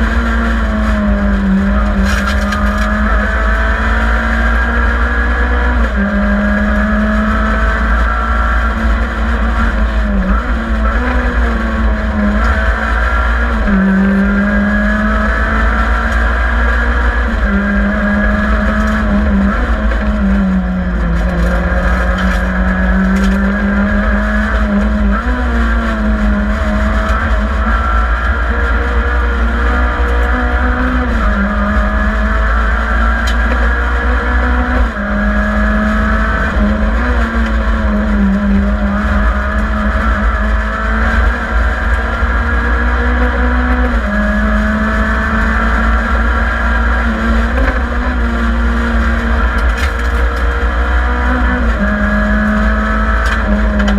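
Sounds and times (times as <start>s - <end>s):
rally car engine revving: 0.0s - 53.9s
road and wind noise: 0.0s - 53.9s.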